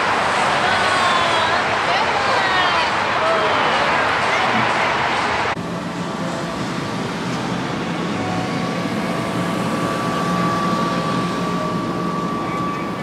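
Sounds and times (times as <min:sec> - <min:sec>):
crowd chatter: 0:00.0 - 0:13.0
mechanical hum: 0:00.0 - 0:13.0
faint high whine: 0:05.6 - 0:13.0.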